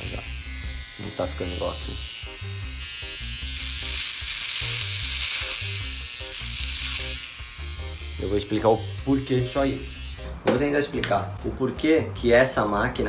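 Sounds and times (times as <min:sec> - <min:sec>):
electric trimmer cutting stubble: 0:00.0 - 0:10.3.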